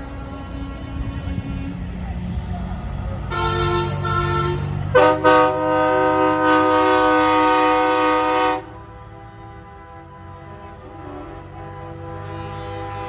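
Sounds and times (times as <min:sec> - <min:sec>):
truck air horn blasts: 0:00.0 - 0:01.9, 0:03.2 - 0:13.0
truck engines rumbling: 0:00.0 - 0:13.0.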